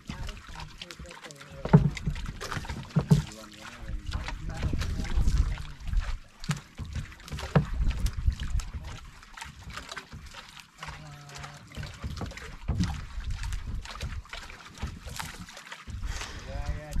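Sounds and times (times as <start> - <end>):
water noise: 0.0 - 17.0
sharp knocks and clicks: 1.6 - 3.4, 6.4 - 8.5, 11.8 - 16.1.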